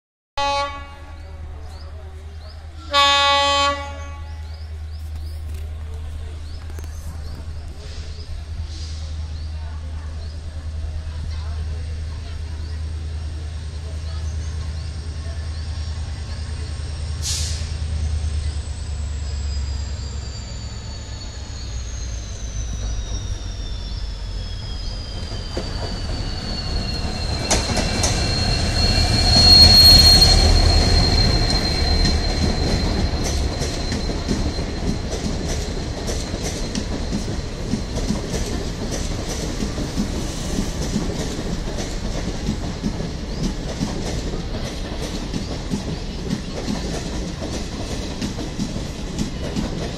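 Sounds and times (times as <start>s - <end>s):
diesel locomotive engine rumble: 0.4s - 49.9s
train wheels clacking over rail joints: 25.1s - 29.6s, 30.7s - 49.9s.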